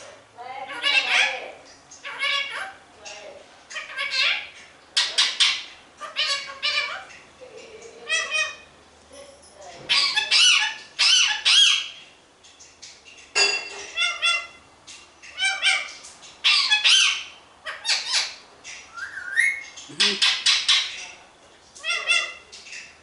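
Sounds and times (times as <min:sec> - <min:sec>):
parakeet squawking: 0:00.6 - 0:02.8, 0:03.7 - 0:07.1, 0:08.0 - 0:08.7, 0:09.9 - 0:12.0, 0:13.9 - 0:14.6, 0:15.3 - 0:18.4, 0:19.0 - 0:21.0, 0:21.8 - 0:22.5.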